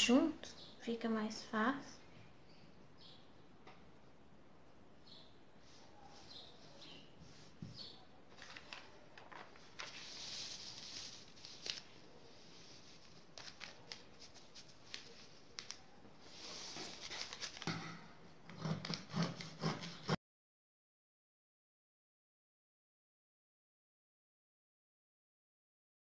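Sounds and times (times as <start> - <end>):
hands rubbing paper on fabric: 9.6 - 17.6
scissors snipping fabric: 18.5 - 20.2.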